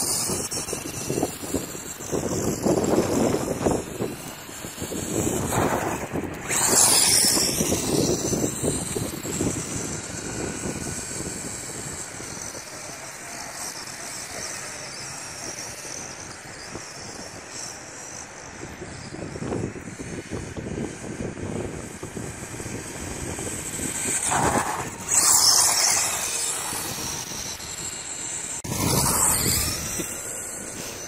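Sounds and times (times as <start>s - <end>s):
electric motor whining: 0.0s - 31.0s
tyres rasping on asphalt: 0.0s - 31.0s.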